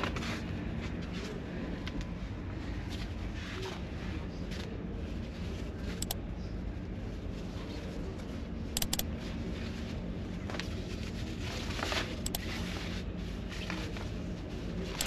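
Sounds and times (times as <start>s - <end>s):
low machinery hum: 0.0s - 15.0s
sharp double clicks: 8.8s - 9.0s.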